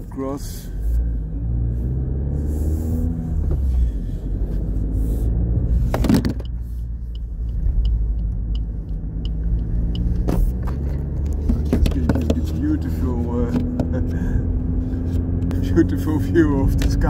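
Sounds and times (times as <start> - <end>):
car engine at low revs: 0.0 - 17.0
road noise: 0.0 - 17.0
light regular ticking: 6.4 - 10.2.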